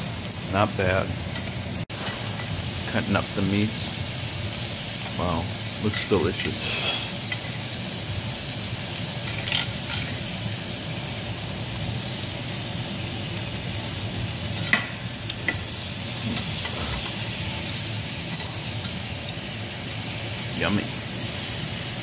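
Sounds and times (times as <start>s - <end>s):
meat sizzling on a grill: 0.0s - 22.0s
metal tongs and scissors clicking: 9.3s - 10.2s.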